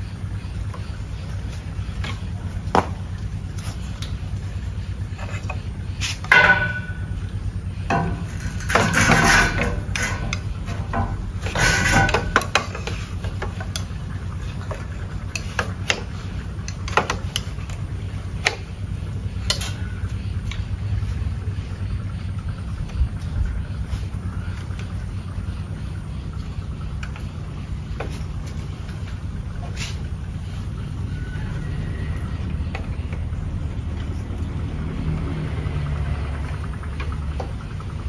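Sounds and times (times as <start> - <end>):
steady low hum: 0.0 - 38.0
clattering and scraping: 5.0 - 7.2, 7.9 - 17.8.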